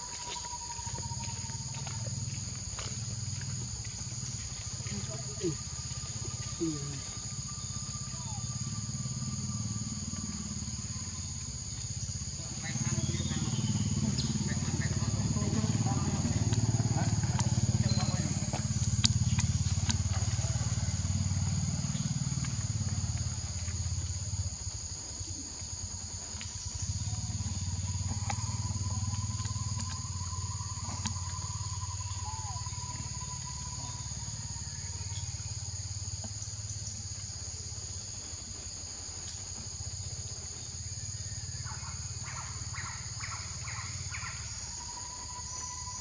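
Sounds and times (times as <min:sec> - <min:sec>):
insects droning: 0:00.0 - 0:46.0.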